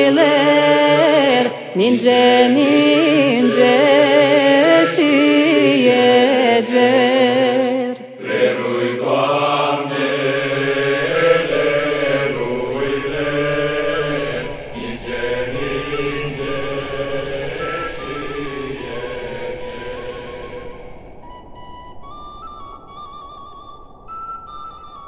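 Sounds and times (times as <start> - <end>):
chanting voices holding a drone: 0.0 - 21.3
held sung note with vibrato: 0.0 - 23.6
woodwind melody: 0.0 - 25.0.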